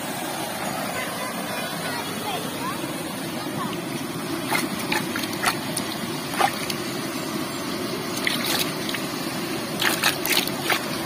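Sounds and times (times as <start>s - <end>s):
rushing water: 0.0s - 11.0s
water splashing in a plastic bucket: 4.4s - 6.8s, 8.1s - 9.1s, 9.7s - 11.0s.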